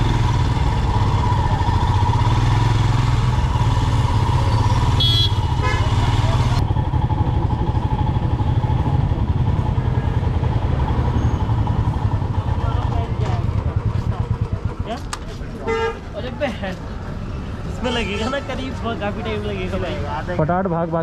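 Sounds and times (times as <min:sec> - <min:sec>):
motorcycle engine running: 0:00.0 - 0:16.0
short high horn beep: 0:05.0 - 0:05.9.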